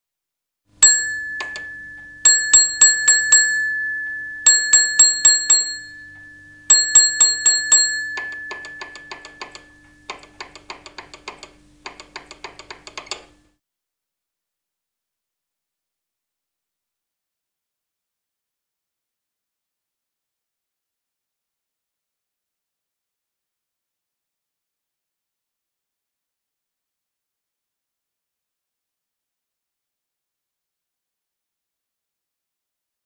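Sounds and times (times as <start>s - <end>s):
signal box bell ringing: 0.8s - 10.7s
quick bell taps: 0.8s - 13.3s.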